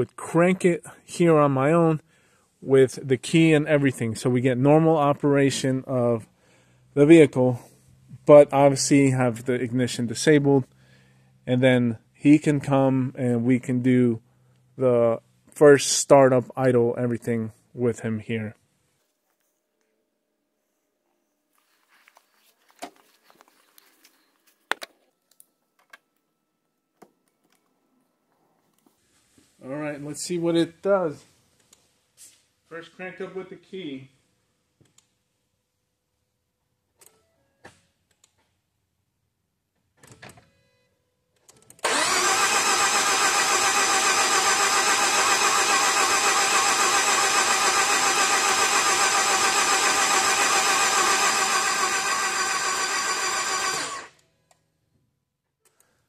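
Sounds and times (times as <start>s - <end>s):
engine starter cranking: 41.7s - 54.2s.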